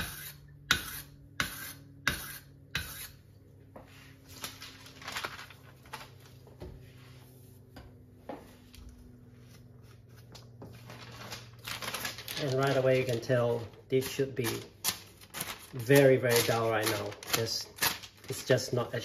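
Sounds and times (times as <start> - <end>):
knife scraping on whetstone: 0.0 - 3.2.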